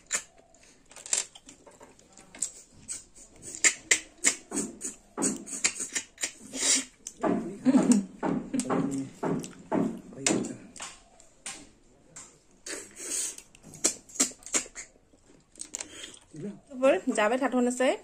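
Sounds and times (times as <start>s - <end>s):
wet lip-smacking clicks: 0.0s - 0.3s, 2.4s - 7.2s, 12.6s - 15.0s
chewing: 0.0s - 7.2s, 12.5s - 16.7s
person slurping snails: 2.4s - 7.1s, 12.6s - 15.0s.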